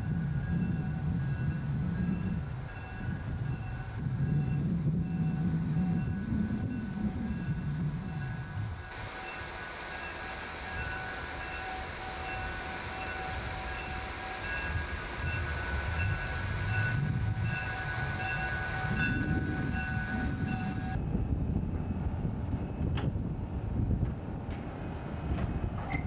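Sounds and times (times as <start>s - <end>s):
pulsing ringing tone: 0.0s - 8.6s, 10.0s - 21.1s
diesel locomotive engine: 0.0s - 26.0s.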